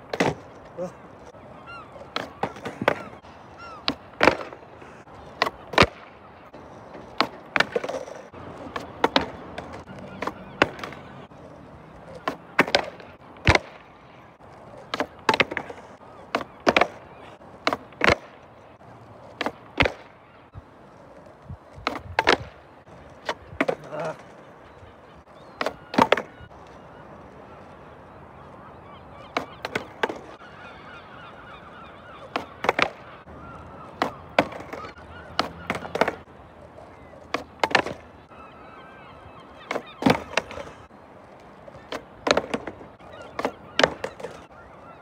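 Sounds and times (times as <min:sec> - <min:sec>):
skateboard pops and clacks: 0:00.1 - 0:00.6, 0:02.1 - 0:03.2, 0:03.8 - 0:04.6, 0:05.3 - 0:06.2, 0:06.8 - 0:11.0, 0:12.1 - 0:14.0, 0:14.7 - 0:17.0, 0:17.6 - 0:18.5, 0:19.2 - 0:20.2, 0:21.2 - 0:24.2, 0:25.6 - 0:26.4, 0:29.3 - 0:30.4, 0:32.3 - 0:33.0, 0:33.9 - 0:38.1, 0:39.7 - 0:44.5.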